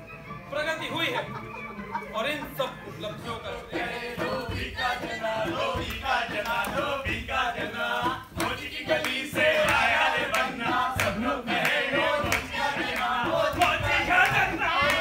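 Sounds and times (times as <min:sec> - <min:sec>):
group chanting and shouting: 0:03.1 - 0:15.0.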